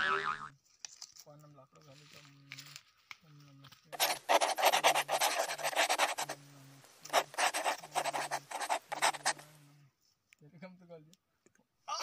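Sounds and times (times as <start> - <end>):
rough rubbing and scraping: 3.9 - 9.6.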